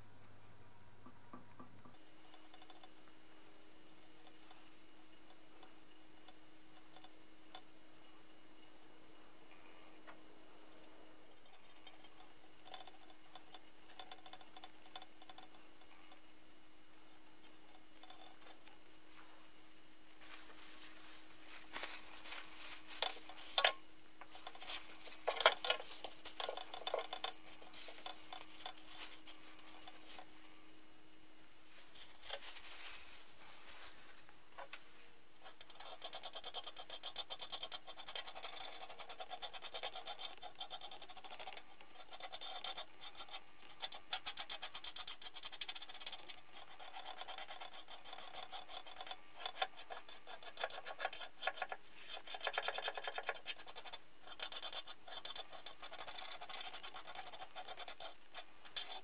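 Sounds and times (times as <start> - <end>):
plastic bag crinkling: 20.2 - 23.7, 32.0 - 34.3.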